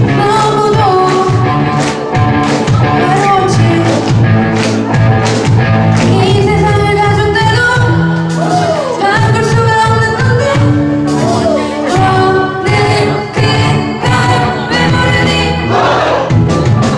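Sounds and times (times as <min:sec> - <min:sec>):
woman singing: 0:00.0 - 0:01.7, 0:02.8 - 0:04.1, 0:06.0 - 0:08.1, 0:08.9 - 0:15.7
live rock band playing: 0:00.0 - 0:16.9.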